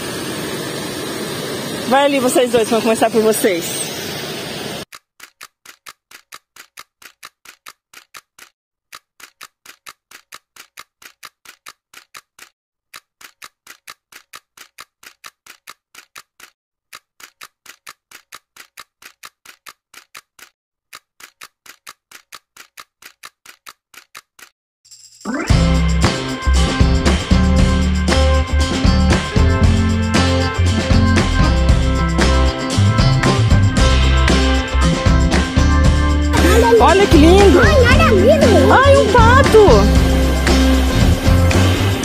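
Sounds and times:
dry sharp ticking: 0:04.9 - 0:24.5.

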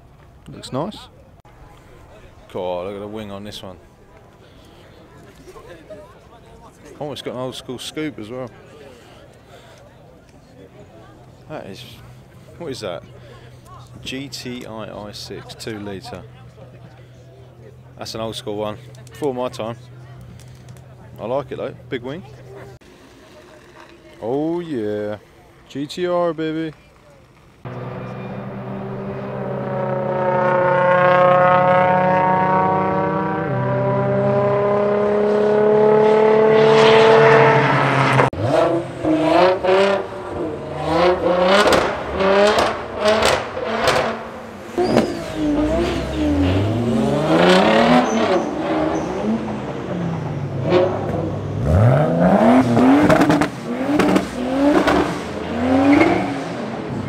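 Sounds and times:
car engine accelerating: 0:27.4 - 0:57.0
car revving in a tunnel: 0:27.7 - 0:57.0.

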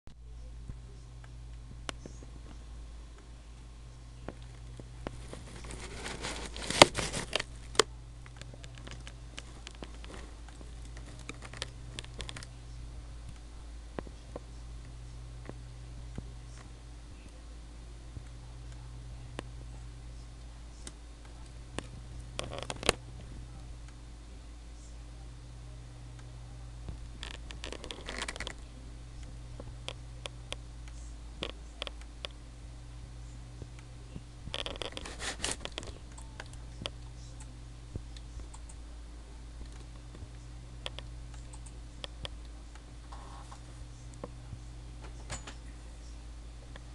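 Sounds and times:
steady low hum: 0:00.1 - 0:46.9
crinkling rustling noise: 0:04.2 - 0:12.5, 0:21.8 - 0:23.0, 0:26.9 - 0:28.7, 0:34.4 - 0:36.1.

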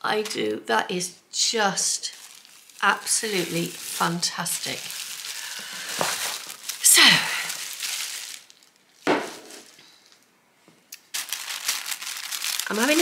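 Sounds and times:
tissue paper rustling: 0:02.0 - 0:10.0, 0:11.1 - 0:13.0.

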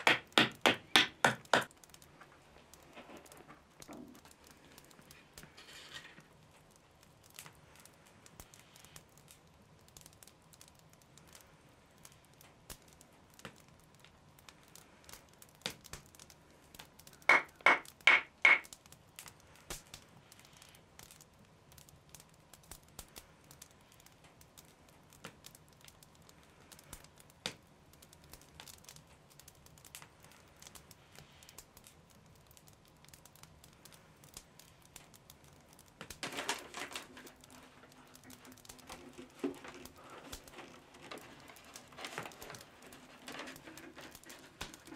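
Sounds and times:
sharp wooden knocks: 0:00.0 - 0:01.7, 0:17.3 - 0:18.7
wooden parts clicking and rustling: 0:17.2 - 0:18.7, 0:36.0 - 0:44.9.

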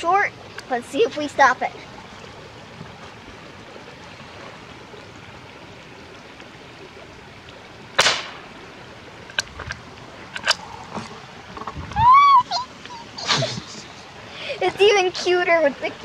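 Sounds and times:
rifle shot crack: 0:08.0 - 0:08.5
rifle bolt metallic clicks: 0:10.4 - 0:10.6.

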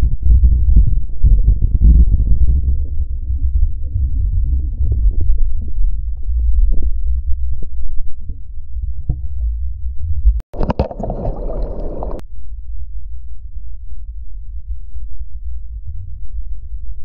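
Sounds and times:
muffled rumble of churning water: 0:00.2 - 0:12.2.

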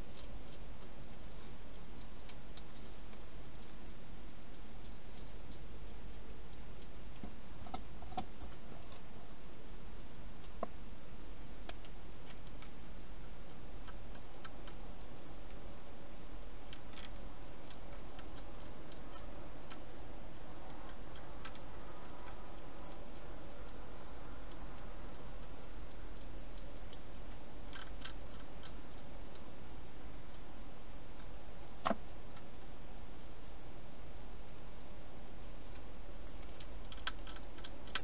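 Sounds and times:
hedgehog crunching dry food: 0:00.0 - 0:09.1, 0:11.6 - 0:33.4, 0:35.7 - 0:38.0.

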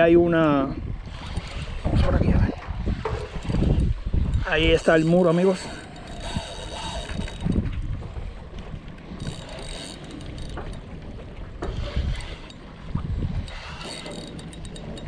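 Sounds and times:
wind buffeting microphone: 0:00.0 - 0:15.0
fishing reel whirring: 0:01.0 - 0:02.0, 0:02.8 - 0:15.0.

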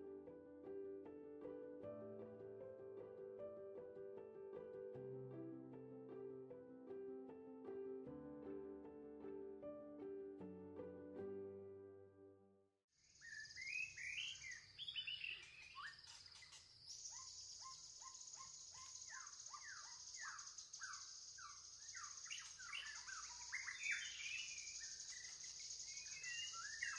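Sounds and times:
birds chirping: 0:13.1 - 0:26.9.

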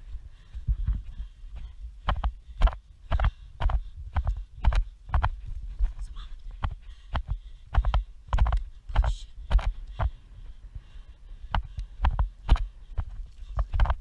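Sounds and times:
hooves thudding on turf: 0:00.0 - 0:14.0.

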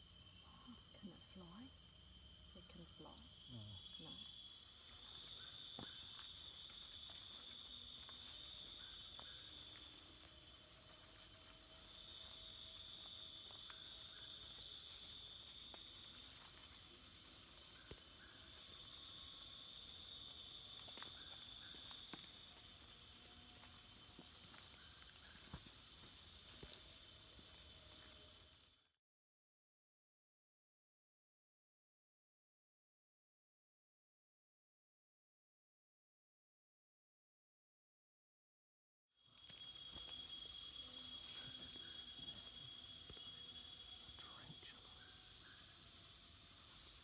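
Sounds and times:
fast pulsing insect chirp: 0:00.0 - 0:28.8, 0:39.2 - 0:47.0
insects trilling: 0:00.0 - 0:28.8, 0:39.2 - 0:47.0.

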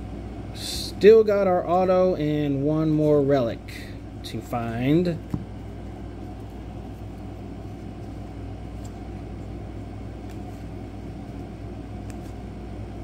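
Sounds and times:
low background hum: 0:00.0 - 0:13.0
trading cards flicked by hand: 0:10.2 - 0:11.4, 0:12.0 - 0:12.5.

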